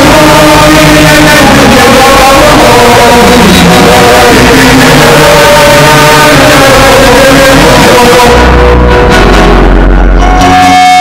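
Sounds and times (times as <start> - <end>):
distorted emergency alert alarm: 0.0 - 11.0
steady high tone: 0.0 - 11.0.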